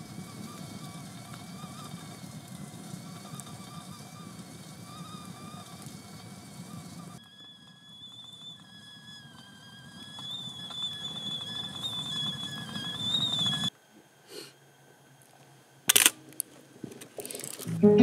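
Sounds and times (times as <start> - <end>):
fire crackling: 0.0 - 13.7
kettle whistling: 0.0 - 13.8
camera shutter click: 15.9 - 16.2.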